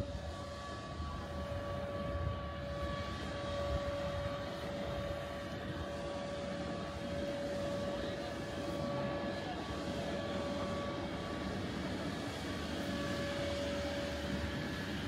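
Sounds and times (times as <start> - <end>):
electric blower fans humming: 0.0 - 15.0.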